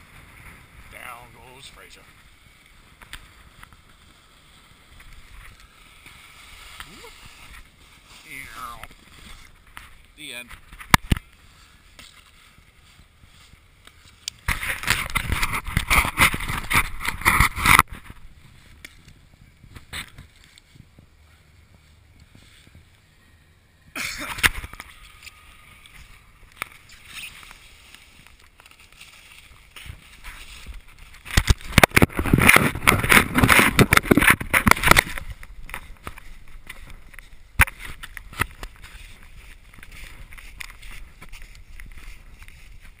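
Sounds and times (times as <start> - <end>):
fabric rubbing on camera: 2.8 - 10.0.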